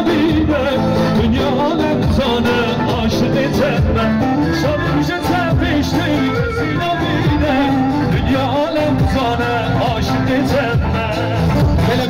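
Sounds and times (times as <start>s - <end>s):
loud amplified dance music: 0.0s - 12.0s.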